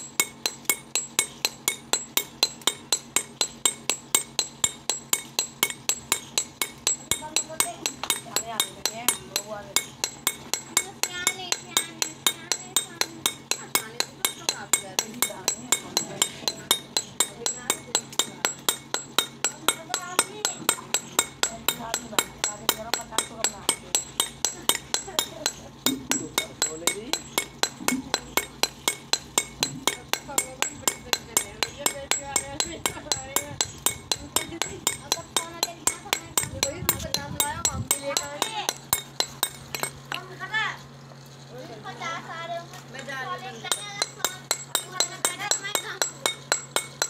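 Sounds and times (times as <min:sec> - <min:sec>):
hammer tapping chisel on stone: 0:00.1 - 0:40.2, 0:43.7 - 0:47.0.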